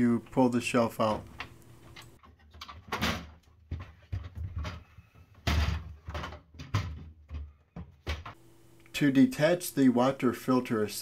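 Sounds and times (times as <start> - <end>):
plastic shelf clicking and knocking: 2.2 - 8.4.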